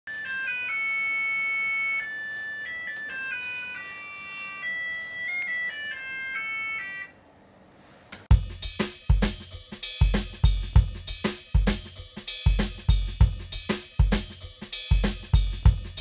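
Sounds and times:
alarm clock beeping melody: 0.1 - 7.2.

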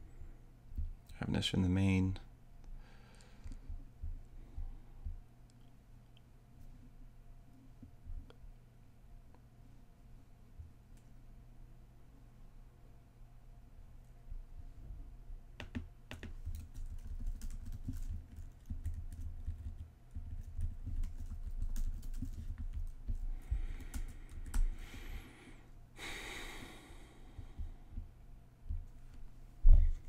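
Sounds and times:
keyboard typing: 15.6 - 24.7.

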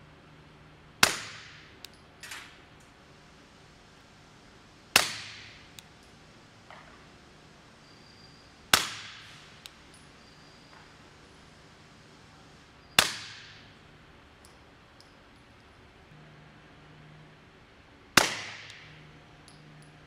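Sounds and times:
suppressed pistol shots: 1.0 - 1.7, 4.9 - 5.6, 8.7 - 9.3, 13.0 - 13.6, 18.2 - 18.9.

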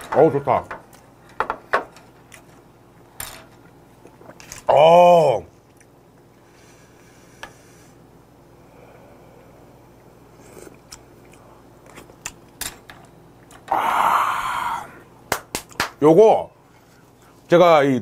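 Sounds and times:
breathy air through mouth: 13.7 - 15.0.

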